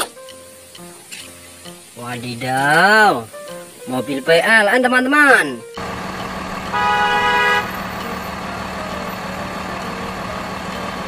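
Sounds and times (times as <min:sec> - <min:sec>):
car horn: 0:05.8 - 0:11.0
steady low hum: 0:05.8 - 0:11.0.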